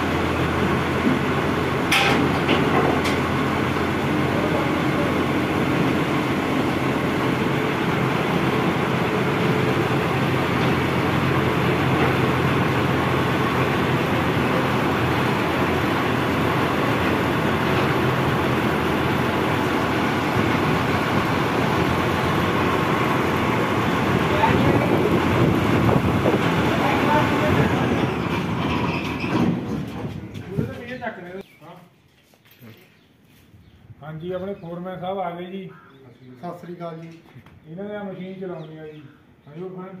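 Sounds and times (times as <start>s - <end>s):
diesel engine idling: 0.0s - 30.5s.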